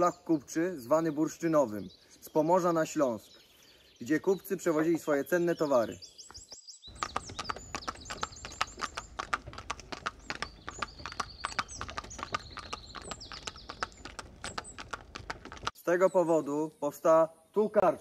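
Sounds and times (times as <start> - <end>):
horse hooves clip-clopping: 6.3 - 15.8
high repeated chirping: 6.9 - 15.7.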